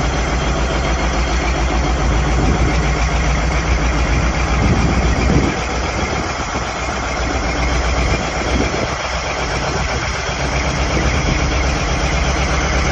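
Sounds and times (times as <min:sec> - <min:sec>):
diesel engine idling: 0:00.0 - 0:12.9.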